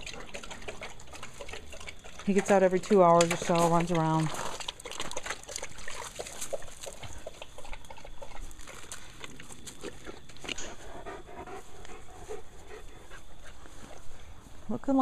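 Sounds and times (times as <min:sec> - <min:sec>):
rustling and scuffing: 0:08.4 - 0:15.0
dog panting: 0:09.8 - 0:14.5.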